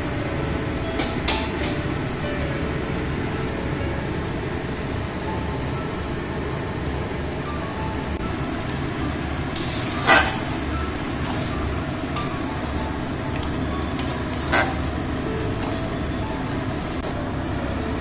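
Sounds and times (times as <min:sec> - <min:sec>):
metal spoon scraping metal pan: 0:09.6 - 0:11.6, 0:12.2 - 0:13.0, 0:14.0 - 0:15.0.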